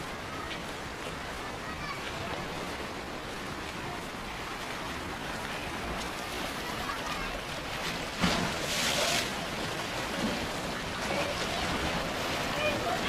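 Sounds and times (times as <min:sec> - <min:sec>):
surf washing: 0:00.0 - 0:13.0
faint voices: 0:08.7 - 0:13.0.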